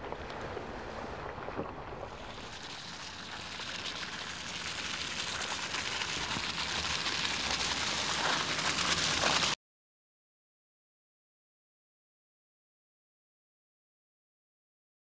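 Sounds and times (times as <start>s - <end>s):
tyres hissing through wet mud: 2.1s - 9.6s.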